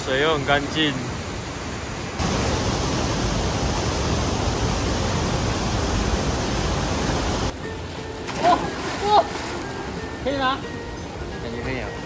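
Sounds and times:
waterfall rushing: 0:00.0 - 0:07.6.

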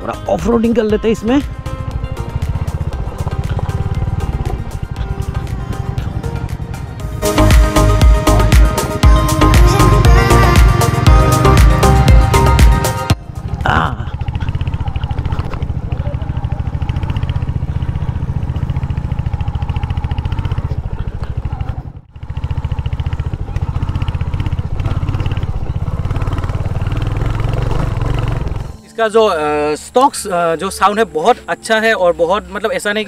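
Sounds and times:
music: 0:00.0 - 0:14.1, 0:27.7 - 0:33.0
motorcycle engine thumping: 0:01.4 - 0:28.8.

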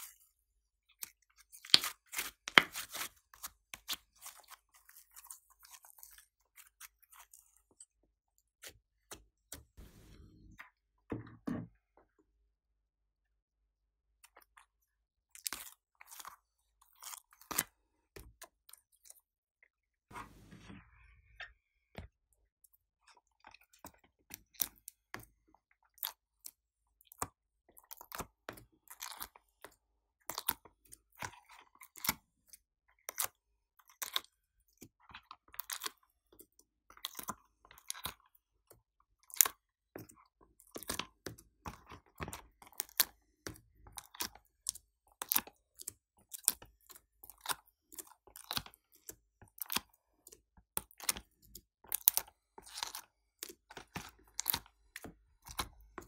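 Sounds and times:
sticky clicks of handled slime: 0:37.0 - 0:56.0.

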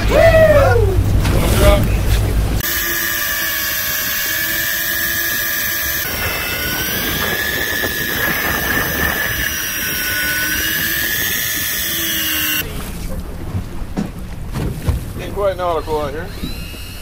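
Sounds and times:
boat noise: 0:00.0 - 0:17.0
wind: 0:00.0 - 0:17.0
electric fishing reel motor whining: 0:02.6 - 0:12.6.

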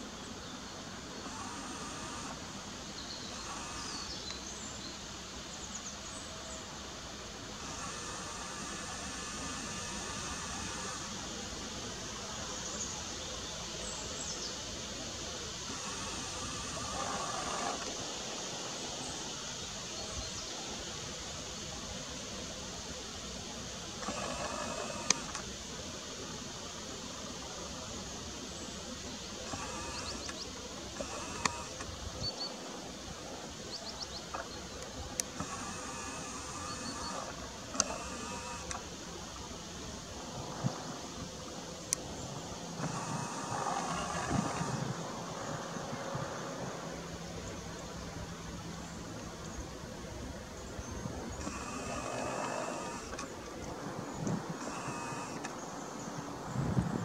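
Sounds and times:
outdoor background hiss: 0:00.0 - 0:57.0
steady background hush: 0:00.0 - 0:57.0
sharp clicks: 0:24.0 - 0:25.5, 0:29.4 - 0:32.0, 0:34.3 - 0:38.9, 0:51.4 - 0:55.6.

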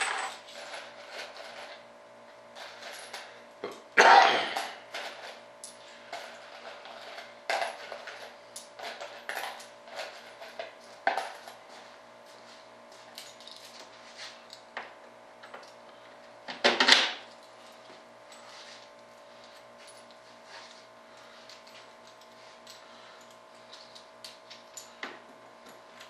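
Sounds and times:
metal bolts and nuts clinking: 0:00.0 - 0:01.8
metal parts clattering: 0:00.0 - 0:01.8, 0:04.0 - 0:05.4.

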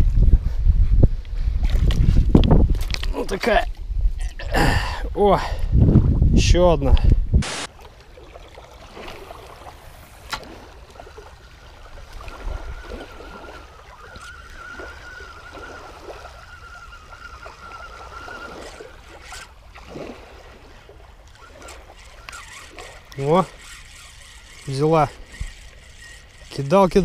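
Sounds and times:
small waves lapping: 0:07.5 - 0:27.0
fishing reel whirring: 0:08.8 - 0:27.0.

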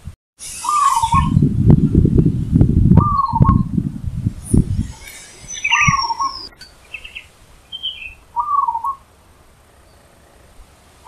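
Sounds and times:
low rumble: 0:00.0 - 0:07.1
bird falling whistle: 0:00.5 - 0:01.4, 0:04.5 - 0:09.0
dove cooing: 0:04.8 - 0:09.0.

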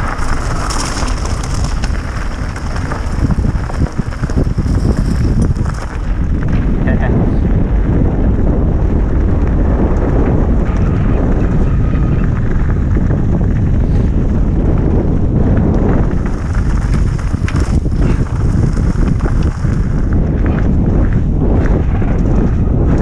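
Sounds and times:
tyres crunching on gravel: 0:00.0 - 0:07.4, 0:15.6 - 0:23.0
wind buffeting microphone: 0:00.0 - 0:23.0.

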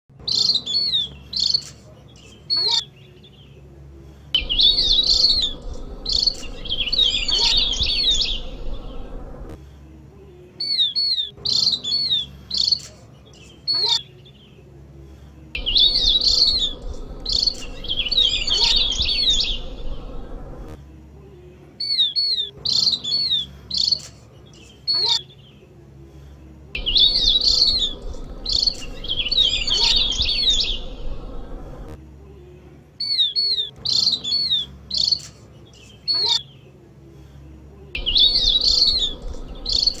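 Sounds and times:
bird twittering call: 0:04.4 - 0:09.1, 0:15.6 - 0:20.2, 0:26.8 - 0:31.3, 0:38.0 - 0:40.0.

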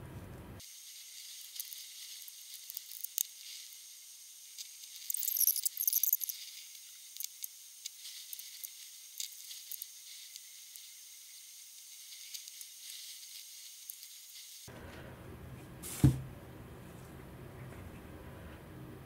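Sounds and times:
small clicks: 0:04.6 - 0:10.9.

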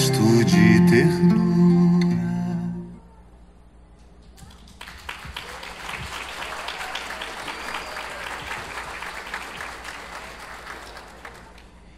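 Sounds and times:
audience applause: 0:04.6 - 0:11.9.

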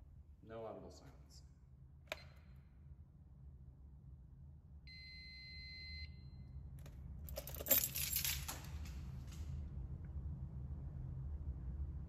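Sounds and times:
fire alarm high beep: 0:04.9 - 0:06.4
keys jingling: 0:07.3 - 0:09.0.

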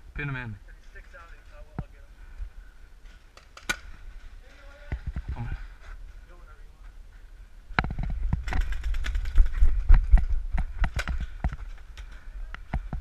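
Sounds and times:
paintball gun shots popping: 0:03.3 - 0:04.0, 0:10.8 - 0:11.6.

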